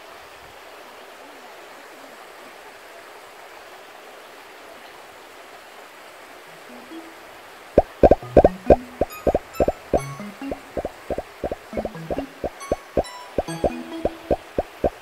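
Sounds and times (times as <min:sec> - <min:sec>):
stream running over rocks: 0:00.0 - 0:15.0
background music plucked note: 0:08.0 - 0:15.0.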